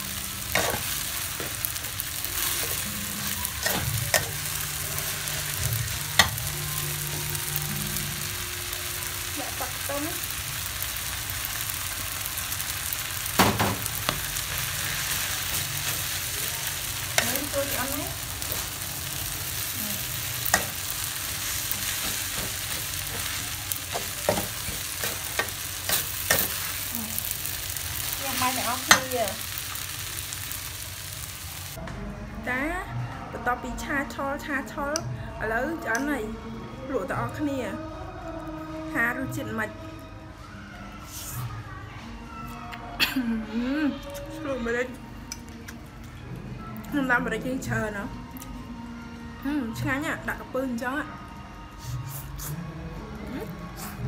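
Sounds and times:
noodles sizzling in a wok: 0:00.0 - 0:31.8.

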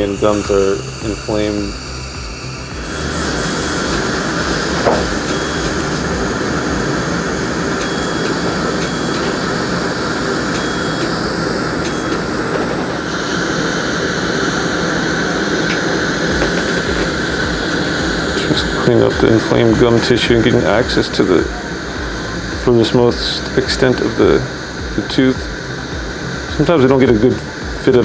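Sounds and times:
dental suction hissing: 0:00.0 - 0:28.0
short high electronic beeps: 0:02.1 - 0:06.0.

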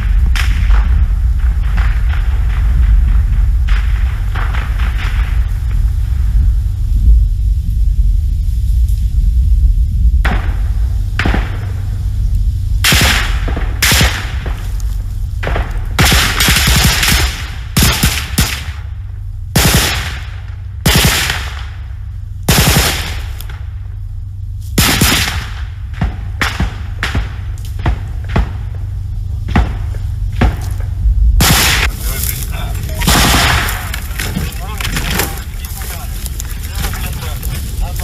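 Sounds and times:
low rumble: 0:00.0 - 0:38.0
gunfire shots and bursts: 0:12.8 - 0:14.7, 0:15.4 - 0:18.9, 0:19.6 - 0:21.8, 0:22.5 - 0:23.6, 0:24.8 - 0:28.8, 0:31.4 - 0:32.0, 0:33.0 - 0:35.4.

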